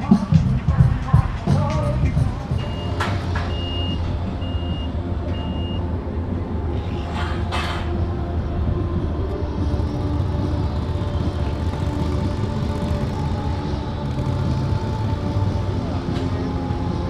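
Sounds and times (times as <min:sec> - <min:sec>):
engine humming: 0:00.0 - 0:17.0
reversing alarm beeping: 0:02.5 - 0:05.9
clatter: 0:09.7 - 0:16.5.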